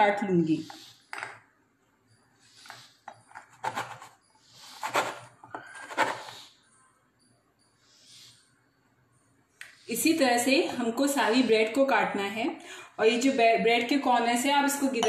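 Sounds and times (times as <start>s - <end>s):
metal rim scraping plastic board: 2.6s - 6.5s.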